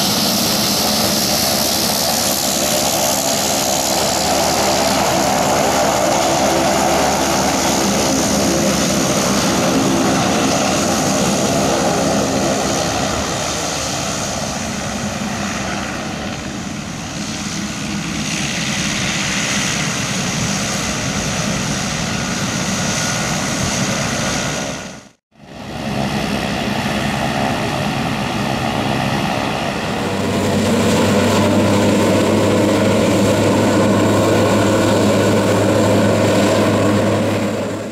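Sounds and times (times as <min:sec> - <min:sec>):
propeller drone: 0:00.0 - 0:37.9
turbine whine: 0:00.0 - 0:37.9.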